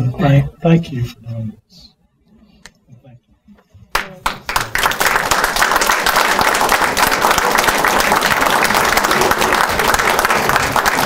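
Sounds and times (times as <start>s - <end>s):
audience applauding: 3.9s - 11.0s.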